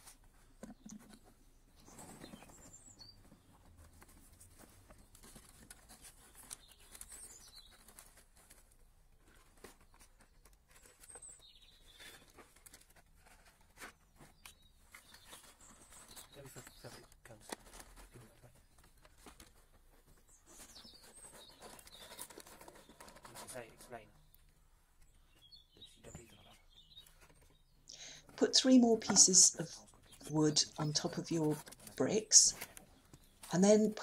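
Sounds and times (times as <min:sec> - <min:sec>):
twigs and cardboard rustling: 0:00.0 - 0:34.0
faint bird chirps: 0:20.2 - 0:34.0.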